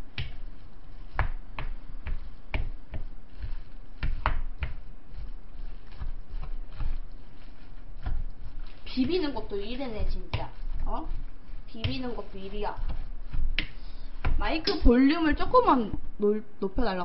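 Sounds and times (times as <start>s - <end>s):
spatula scraping a glass bowl: 5.1s - 14.9s.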